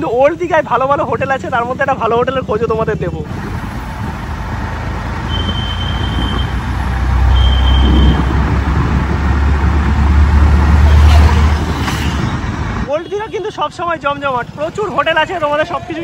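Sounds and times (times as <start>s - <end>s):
auto-rickshaw engine and road noise: 0.0s - 16.0s.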